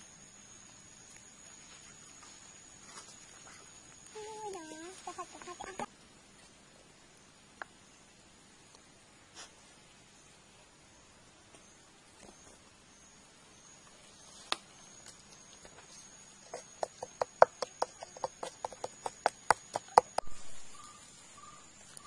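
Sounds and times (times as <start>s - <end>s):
wooden stick pounding in bowl: 16.5s - 20.3s.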